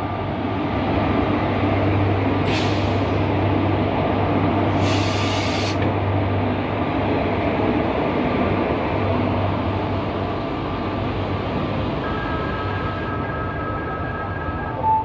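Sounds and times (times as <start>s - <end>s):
train rolling past: 0.0s - 15.0s
burst of hiss: 4.8s - 5.8s.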